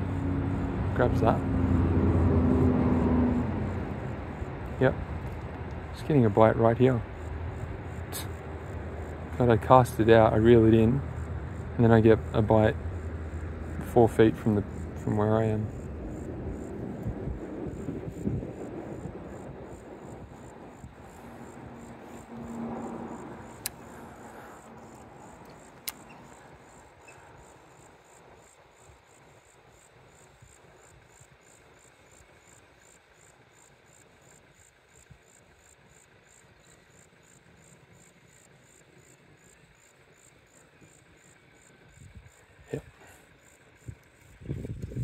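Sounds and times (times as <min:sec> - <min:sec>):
insects chirping: 0:00.0 - 0:45.0
sharp clicks: 0:23.5 - 0:24.0, 0:24.9 - 0:26.4.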